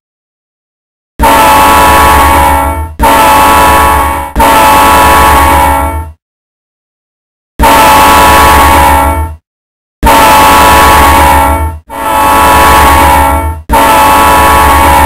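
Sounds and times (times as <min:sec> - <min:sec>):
train horn blasts: 0:01.2 - 0:06.2, 0:07.6 - 0:09.4, 0:10.0 - 0:15.0.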